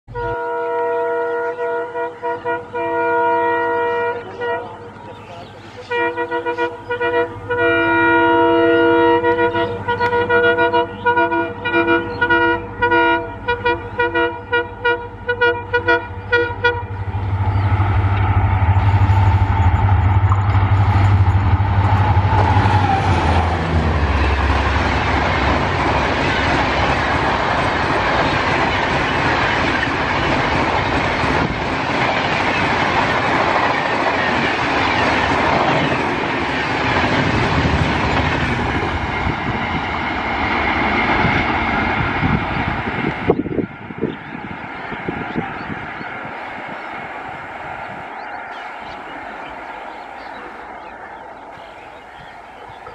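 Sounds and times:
locomotive air horn: 0.1s - 5.0s, 5.7s - 17.5s, 20.8s - 24.8s
locomotive engine passing: 0.1s - 52.9s.

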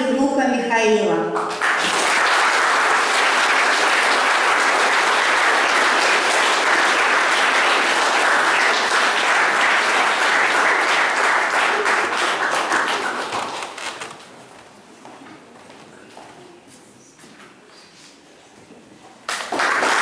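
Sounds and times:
audience applauding: 1.4s - 14.3s, 19.3s - 20.0s.

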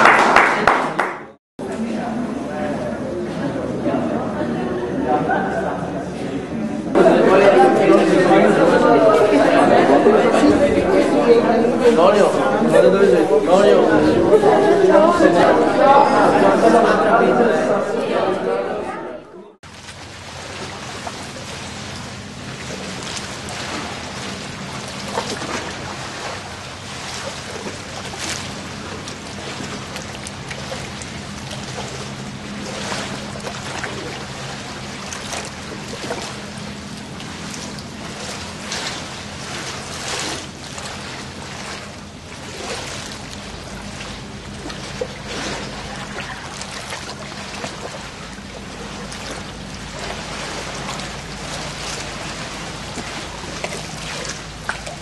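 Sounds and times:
steady low hum: 1.6s - 55.0s
constant rushing noise: 19.7s - 55.0s.

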